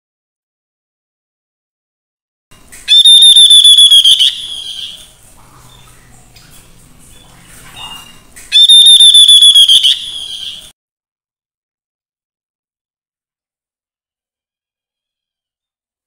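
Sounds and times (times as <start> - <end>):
bird pulsed trill call: 2.8 - 10.7.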